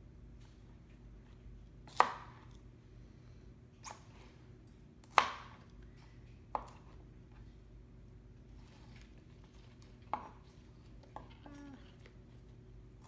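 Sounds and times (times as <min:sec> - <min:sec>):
knife chopping on cutting board: 0:01.9 - 0:02.5, 0:05.0 - 0:05.6, 0:06.5 - 0:07.0.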